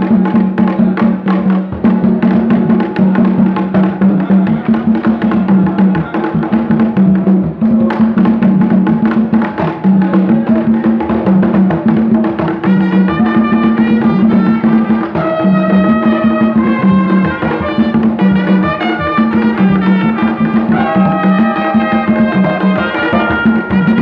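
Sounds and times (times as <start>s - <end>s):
hand drums playing fast rhythm: 0.0s - 24.0s
trumpet melody: 12.5s - 24.0s.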